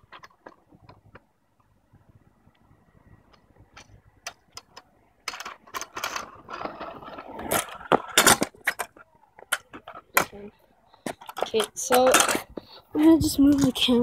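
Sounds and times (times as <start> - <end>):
scooter wheels rolling on concrete: 0.0 - 1.8, 3.2 - 14.0.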